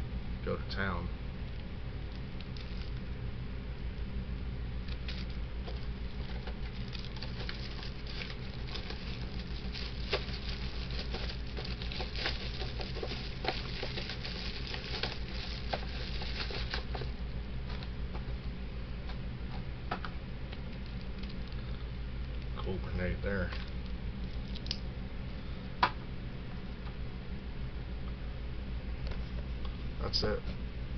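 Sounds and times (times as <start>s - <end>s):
steady low hum: 0.0s - 30.9s
small clicks and crackles: 1.6s - 3.1s, 4.8s - 17.1s, 20.5s - 22.8s, 23.4s - 24.8s
plastic crinkling and rustling: 2.4s - 3.1s, 4.9s - 17.9s.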